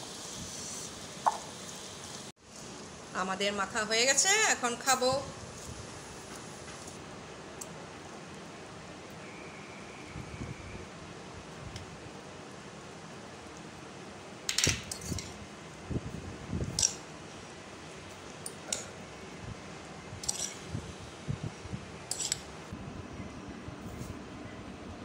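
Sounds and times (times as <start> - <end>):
metal spoon clinking on steel bowl: 20.2 - 20.6, 22.1 - 22.5.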